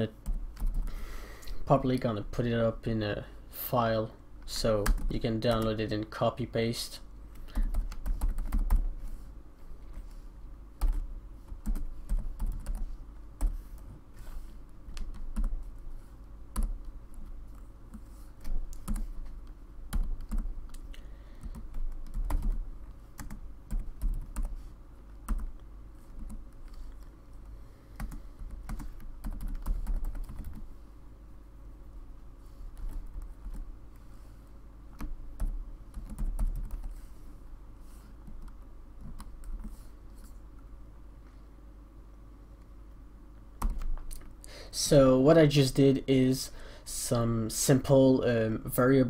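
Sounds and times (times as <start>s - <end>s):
computer keyboard typing: 0.2s - 0.9s, 4.8s - 5.8s, 7.4s - 8.9s, 10.8s - 13.6s, 14.9s - 15.8s, 16.5s - 22.6s, 23.2s - 24.6s, 25.2s - 27.1s, 28.0s - 30.7s, 35.0s - 37.0s, 43.6s - 44.2s.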